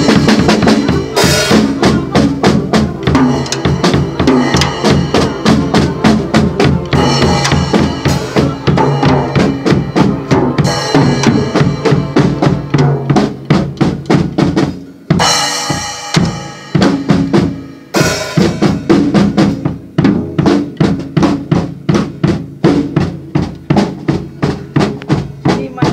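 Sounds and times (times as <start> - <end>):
cymbal washes: 0.0 - 13.5, 14.7 - 19.8
drum kit playing fast beat: 0.0 - 25.9.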